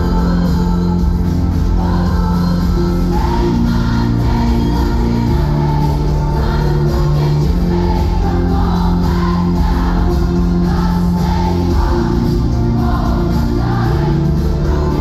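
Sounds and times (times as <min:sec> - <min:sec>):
drums: 0:00.0 - 0:15.0
synth bass: 0:00.0 - 0:15.0
woman singing: 0:00.0 - 0:15.0.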